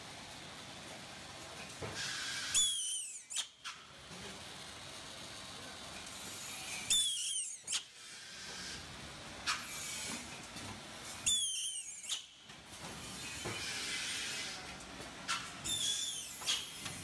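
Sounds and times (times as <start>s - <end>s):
machine hissing and humming: 4.0s - 17.0s.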